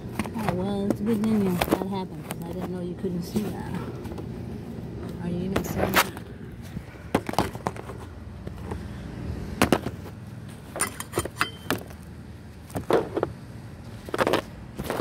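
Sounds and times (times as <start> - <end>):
metallic tool clinks and knocks: 10.8 - 11.9.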